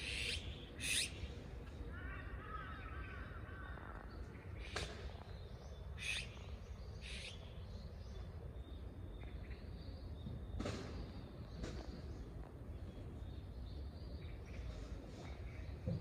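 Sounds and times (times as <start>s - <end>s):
magpie calls: 0.0s - 1.2s, 6.0s - 6.4s, 7.0s - 7.4s.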